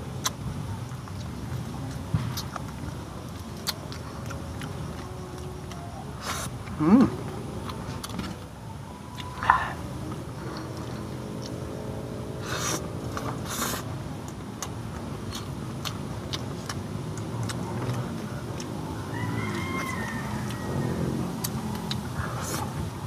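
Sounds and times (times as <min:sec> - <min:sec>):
man chewing food: 0:00.0 - 0:11.8, 0:12.4 - 0:23.0
engine hum: 0:00.0 - 0:23.0
faint pitched drone: 0:01.3 - 0:13.9.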